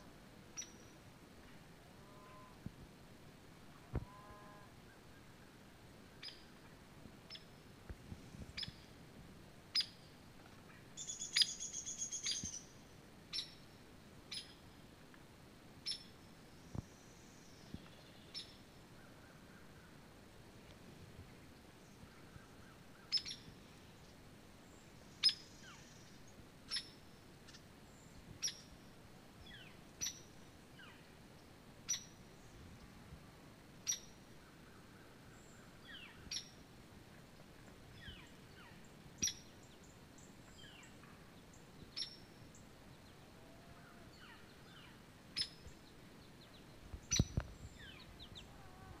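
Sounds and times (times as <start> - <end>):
songbird chip notes: 37.9 - 49.0.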